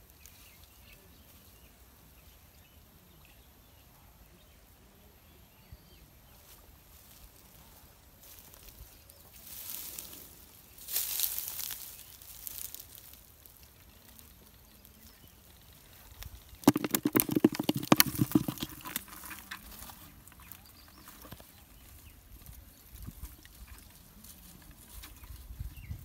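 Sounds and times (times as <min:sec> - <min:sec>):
faint thumps: 0:16.7 - 0:21.4
fish thrashing in a bucket: 0:16.7 - 0:21.4.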